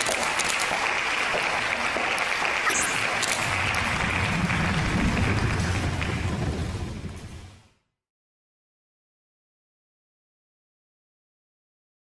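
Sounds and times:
crowd applause: 0:00.0 - 0:07.4
low rumble: 0:03.2 - 0:07.8.

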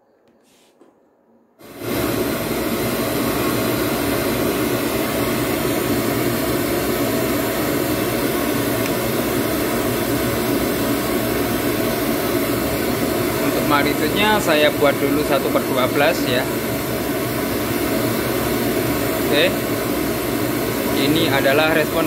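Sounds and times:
loudspeaker test noise: 0:13.3 - 0:16.6, 0:19.2 - 0:19.8, 0:20.8 - 0:22.0.

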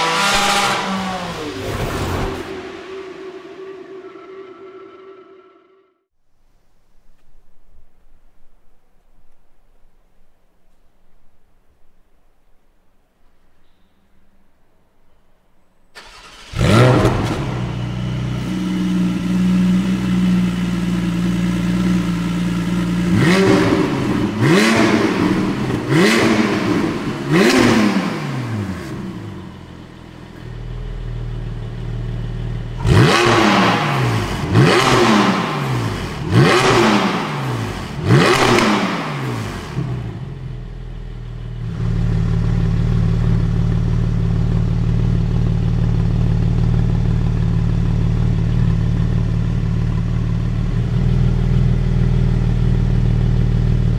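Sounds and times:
car engine idling and revving: 0:00.0 - 0:04.2, 0:16.0 - 0:53.9.

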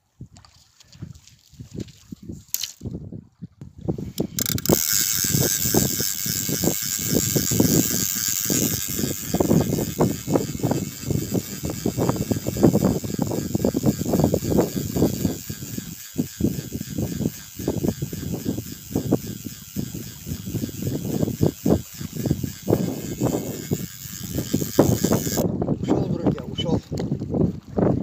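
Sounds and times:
wind buffeting microphone: 0:00.2 - 0:28.0
fishing reel whirring: 0:03.9 - 0:25.5.

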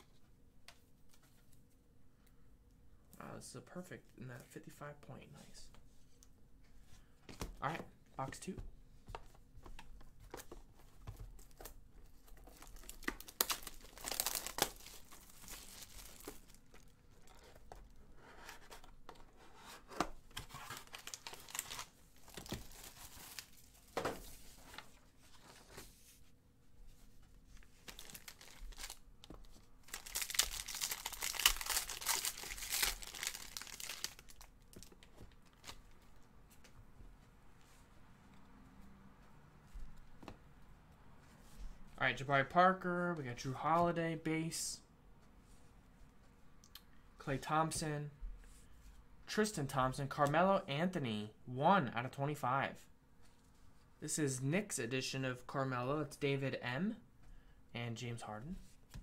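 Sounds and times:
plastic wrapping crinkling: 0:11.4 - 0:18.0, 0:20.4 - 0:24.4, 0:27.6 - 0:35.9.

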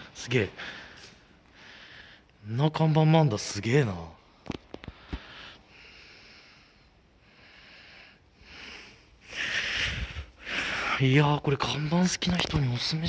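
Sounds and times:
person breathing: 0:00.0 - 0:02.4, 0:04.8 - 0:11.0.

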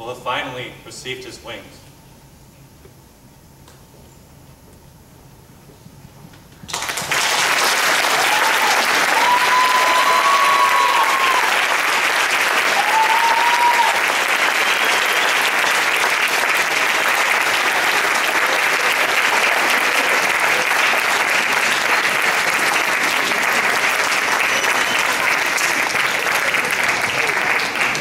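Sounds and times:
audience applauding: 0:06.7 - 0:28.0.

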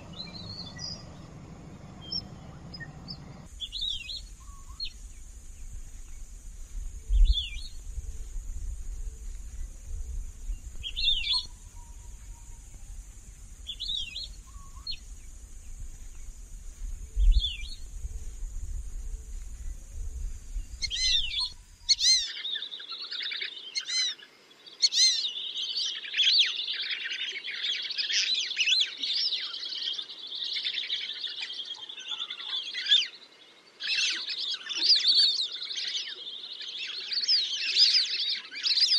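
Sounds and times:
low rumble: 0:00.0 - 0:21.9
steady hiss: 0:00.0 - 0:22.3.

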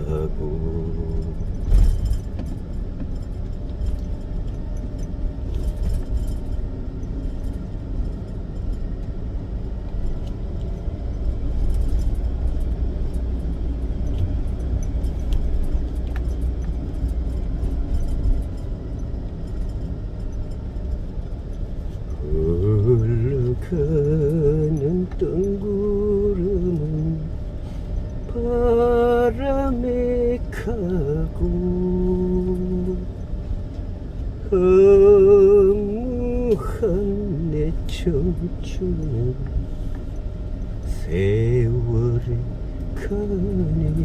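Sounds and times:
singing voice: 0:00.0 - 0:01.6, 0:22.1 - 0:27.4, 0:28.3 - 0:33.2, 0:34.4 - 0:39.6, 0:40.9 - 0:44.0
car driving low rumble: 0:00.0 - 0:44.0.

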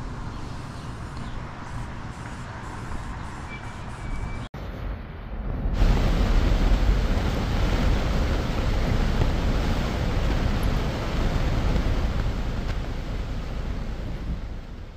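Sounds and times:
highway traffic rushing: 0:00.0 - 0:14.9
wind on microphone: 0:04.6 - 0:14.9.

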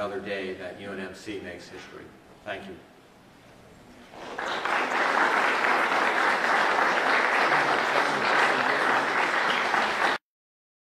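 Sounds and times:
audience applauding: 0:04.1 - 0:10.2.

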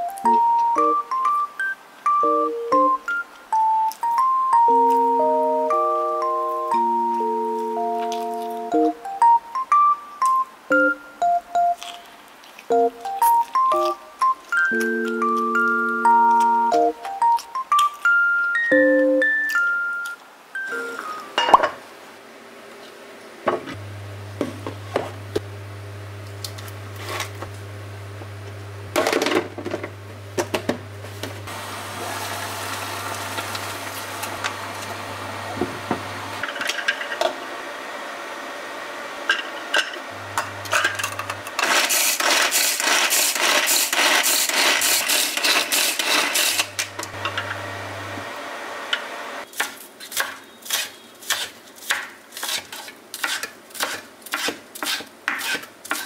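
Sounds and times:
kitchenware clatter: 0:21.4 - 0:21.8, 0:36.4 - 0:37.4, 0:39.3 - 0:47.6
pull-string food chopper whirring: 0:31.5 - 0:38.6, 0:40.1 - 0:49.2
knife chopping on wooden board: 0:49.6 - 0:56.0.

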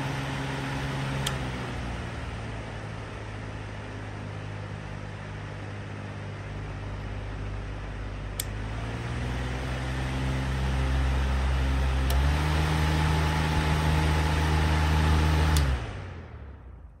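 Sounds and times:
electric fan motor humming: 0:00.0 - 0:16.3
fan switch click: 0:08.4 - 0:08.6, 0:12.0 - 0:12.4, 0:15.5 - 0:15.8.

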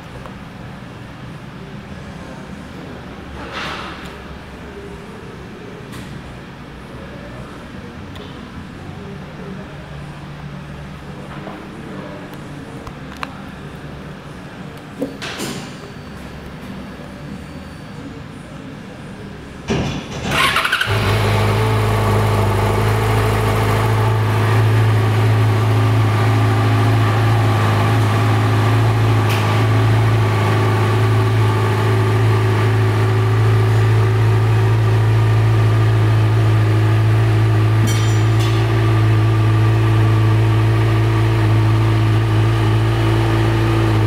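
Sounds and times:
motorcycle engine starting and idling: 0:19.8 - 0:44.0.

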